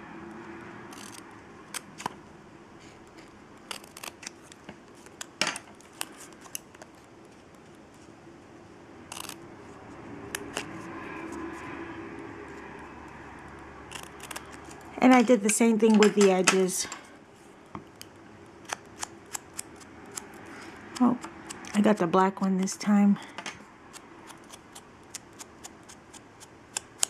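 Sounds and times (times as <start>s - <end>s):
scissors snipping cardstock: 0.9s - 2.1s, 3.7s - 6.9s, 9.1s - 9.4s, 10.3s - 10.8s, 13.9s - 16.7s, 18.6s - 20.3s, 23.9s - 27.0s.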